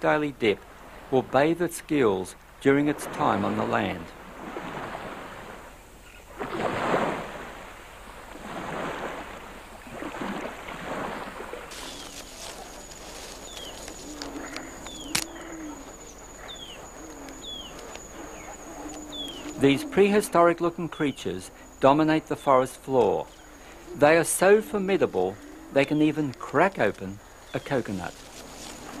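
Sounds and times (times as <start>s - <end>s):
surf washing up the beach: 2.3s - 20.0s
falling bird chirps: 11.7s - 20.4s
high-pitched insect drone: 11.7s - 26.2s
low wavering call: 11.7s - 26.6s.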